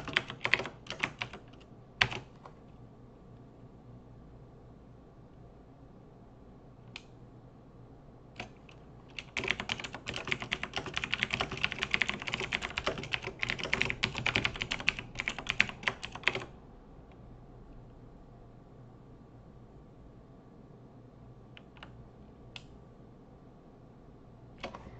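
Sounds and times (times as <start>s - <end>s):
typing on a computer keyboard: 0.0s - 2.6s, 8.4s - 16.5s, 21.6s - 22.0s, 24.6s - 24.9s.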